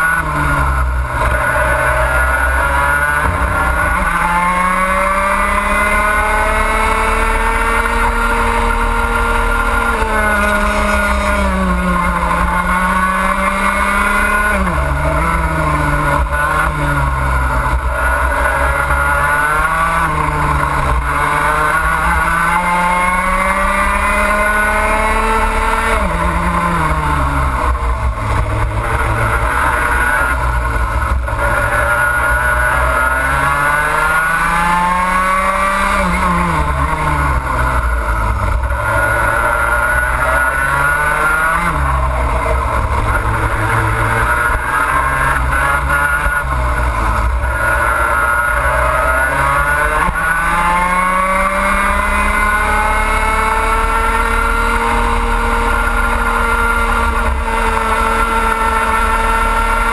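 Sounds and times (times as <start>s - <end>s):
kart engine at full throttle: 0.0s - 59.9s.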